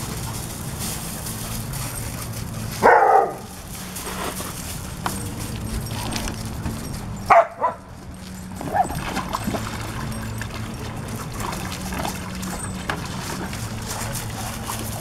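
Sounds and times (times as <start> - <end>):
dog barking: 2.8 - 3.5, 7.3 - 7.9
water splashing in a pool: 8.4 - 15.0.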